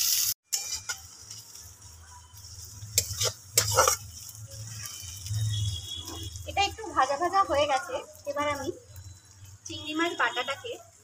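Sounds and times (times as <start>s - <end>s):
metal spatula scraping a wok: 0.0s - 7.6s
onions frying with faint sizzle: 0.0s - 11.0s.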